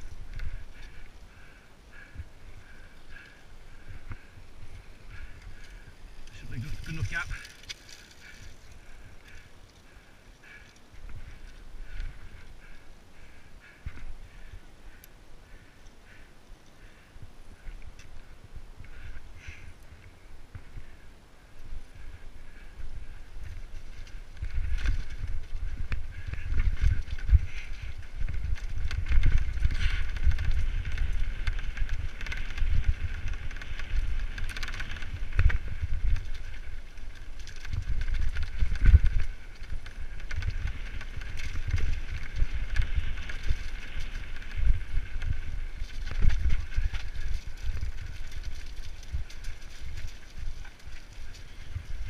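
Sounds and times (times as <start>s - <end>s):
bike rattling: 0.0s - 21.0s, 21.9s - 52.0s
bike tyres rumbling over stones: 0.2s - 9.4s, 22.5s - 52.0s.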